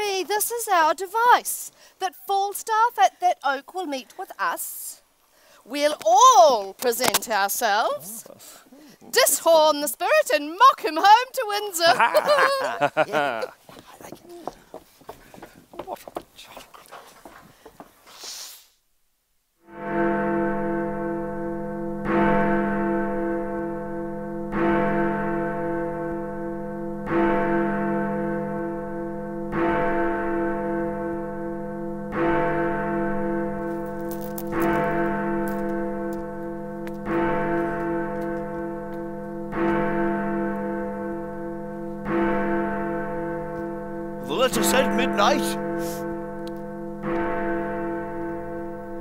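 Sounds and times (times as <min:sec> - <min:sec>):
clock bell tolling: 0:27.1 - 0:49.0.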